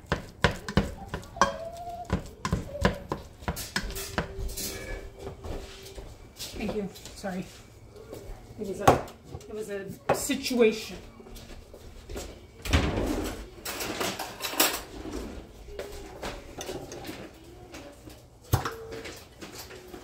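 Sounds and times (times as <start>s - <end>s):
kitchen knocks and clunks: 0.0s - 5.6s, 8.8s - 9.5s, 12.6s - 14.9s.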